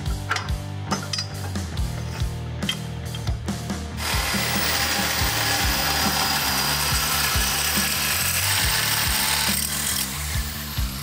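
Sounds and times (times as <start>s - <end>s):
hole saw cutting steel tube: 4.0s - 11.0s.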